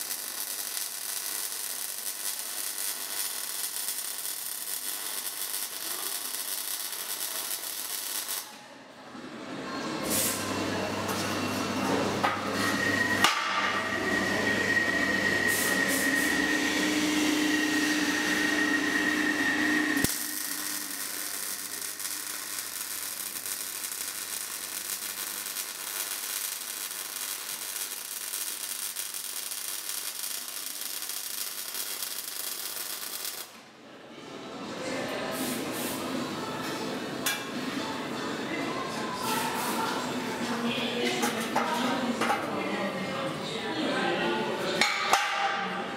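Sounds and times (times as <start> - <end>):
welding arc hissing: 0.0 - 8.6, 15.4 - 33.6
steady sound with high whine: 13.4 - 27.5.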